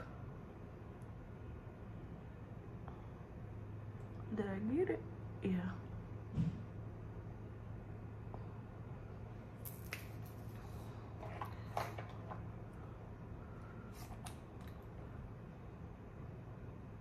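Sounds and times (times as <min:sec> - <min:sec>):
low steady hum: 0:00.0 - 0:17.0
plastic containers clicking and scraping: 0:11.2 - 0:12.5.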